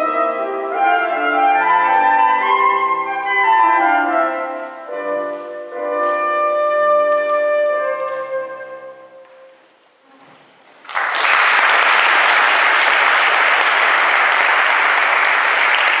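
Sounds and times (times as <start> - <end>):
audience applause: 10.7 - 16.0.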